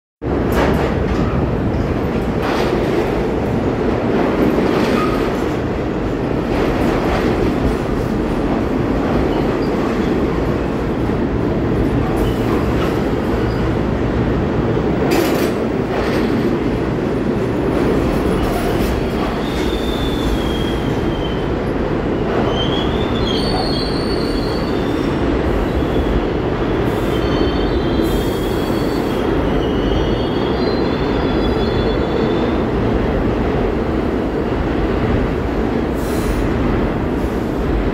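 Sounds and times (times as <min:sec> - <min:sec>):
subway train wheels rumbling: 0:00.2 - 0:37.9
train wheels squealing: 0:19.3 - 0:21.5, 0:22.4 - 0:26.2, 0:26.9 - 0:32.6.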